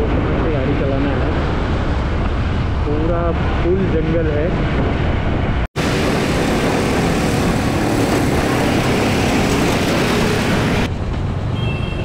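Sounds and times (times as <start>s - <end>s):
wind noise on microphone: 0.0s - 11.1s
motorcycle engine drone: 5.2s - 10.9s.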